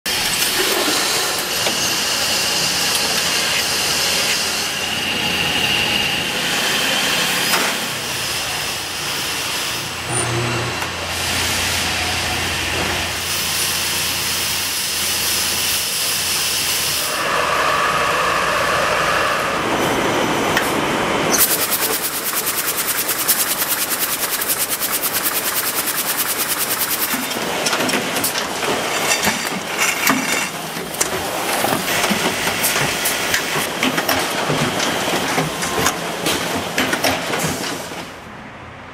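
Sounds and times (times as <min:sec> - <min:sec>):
textile factory machines running: 0:00.1 - 0:38.9
fast mechanical clatter: 0:21.3 - 0:38.1.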